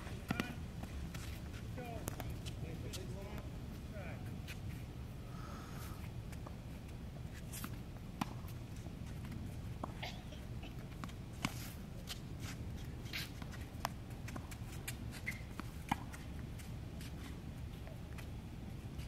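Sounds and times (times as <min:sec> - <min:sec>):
tennis balls struck and bouncing: 0:00.0 - 0:03.5, 0:07.6 - 0:08.6, 0:15.5 - 0:16.2.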